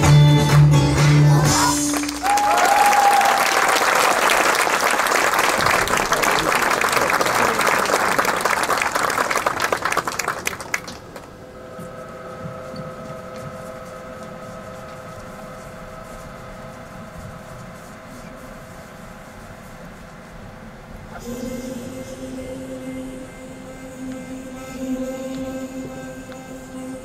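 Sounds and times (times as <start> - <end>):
audience applauding: 1.7 - 11.4
faint hum of held tones: 11.3 - 27.0.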